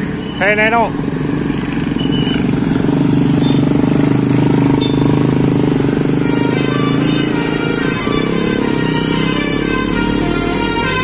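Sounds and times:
bus diesel engine running: 0.0 - 11.0
musical multi-tone horn tune: 6.0 - 11.0.

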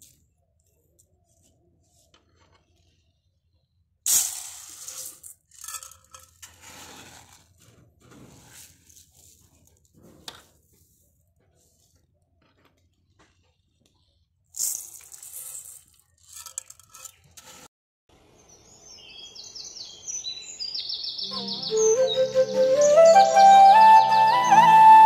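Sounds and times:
rice grains poured in metal pot: 4.1 - 9.9, 14.6 - 17.7
birds chirping: 18.4 - 25.0
background music: 21.2 - 25.0.

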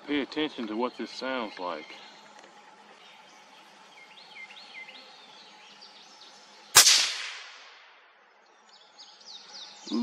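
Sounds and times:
birds chirping faintly: 0.0 - 6.9, 7.6 - 10.0
suppressed rifle shot: 6.8 - 7.8.

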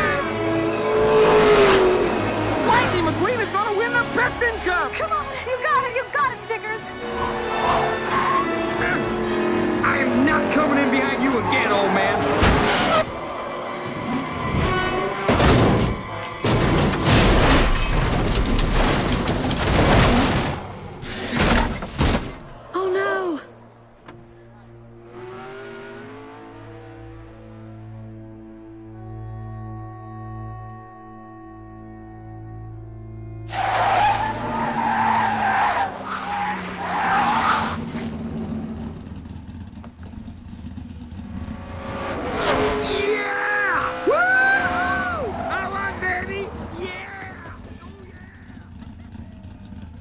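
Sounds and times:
music: 2.1 - 9.6, 28.0 - 33.6
race car tyres screeching: 6.8 - 19.6, 33.4 - 50.0
car crashing and tumbling: 12.3 - 13.2, 14.4 - 22.6.

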